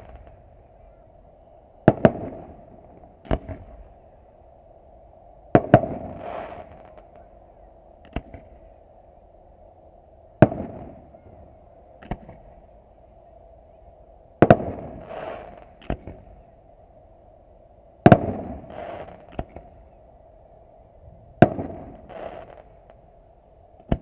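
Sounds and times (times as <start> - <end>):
fireworks bangs: 0.0 - 0.4, 1.8 - 3.9, 5.5 - 7.2, 14.4 - 16.3, 18.0 - 19.7, 21.3 - 22.7
fireworks hissing crackle: 0.0 - 24.0.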